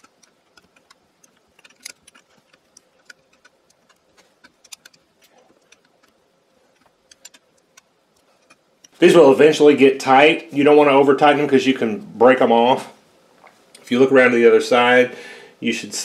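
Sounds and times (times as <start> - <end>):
wrench clicking on screws: 0.0 - 9.0.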